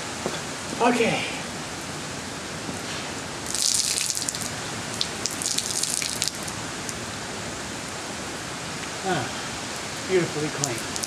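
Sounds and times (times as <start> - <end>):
steady falling rain: 0.0 - 11.0
water splashing onto concrete: 3.4 - 6.6, 10.5 - 11.0.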